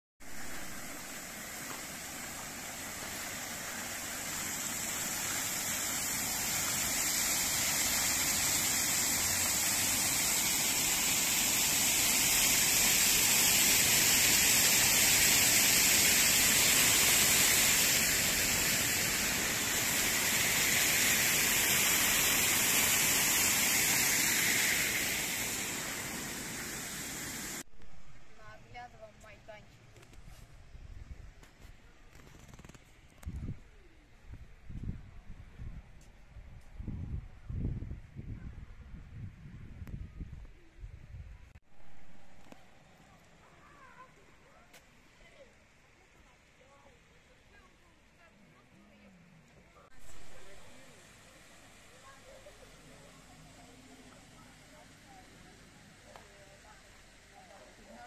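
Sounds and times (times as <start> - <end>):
fountain jets splashing on paving: 0.3 - 27.7, 50.0 - 58.0.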